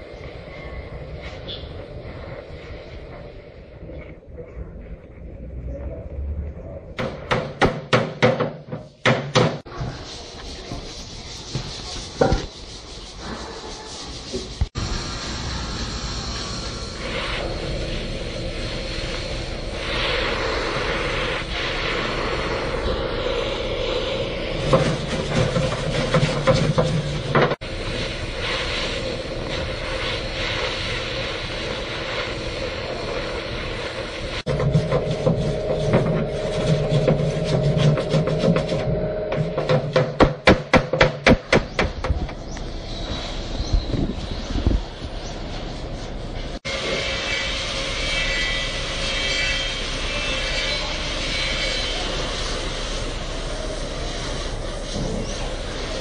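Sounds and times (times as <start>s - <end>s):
steady hiss: 0.0s - 4.3s, 9.6s - 37.7s, 42.6s - 56.0s
hammer knocking on metal: 7.0s - 9.6s, 34.5s - 42.3s.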